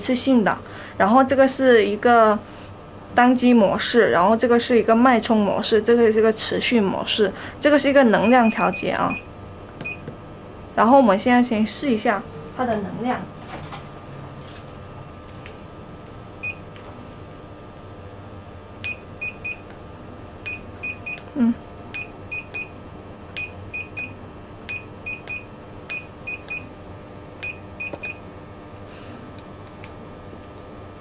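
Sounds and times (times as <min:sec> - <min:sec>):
machine beeping: 0:20.4 - 0:21.3, 0:21.9 - 0:22.8, 0:23.4 - 0:26.7.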